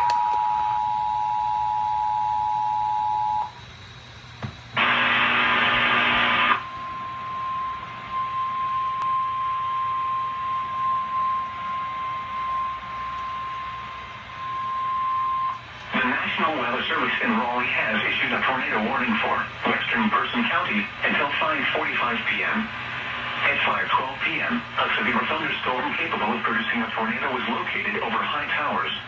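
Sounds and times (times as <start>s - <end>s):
single-tone warning alarm: 0.0s - 3.6s, 4.8s - 16.8s
loud harsh burst: 4.8s - 6.8s.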